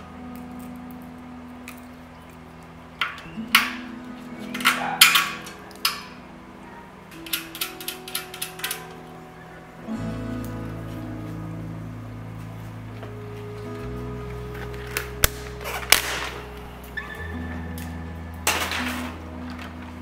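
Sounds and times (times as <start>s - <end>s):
soft background music: 0.0s - 20.0s
metal tools clinking and knocking: 3.0s - 6.1s.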